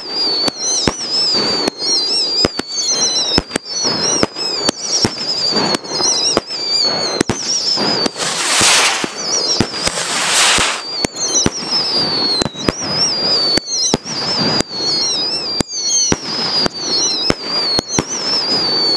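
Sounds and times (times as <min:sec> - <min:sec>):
firework bangs and cracks: 0:00.0 - 0:18.9
firework whistles: 0:00.0 - 0:18.9
dense firework hiss: 0:05.3 - 0:11.6.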